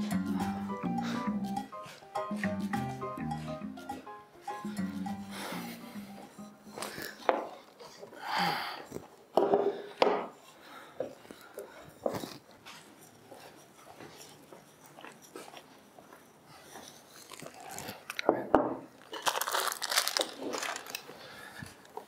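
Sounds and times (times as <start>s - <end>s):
crinkling crunching noise: 16.8s - 22.0s.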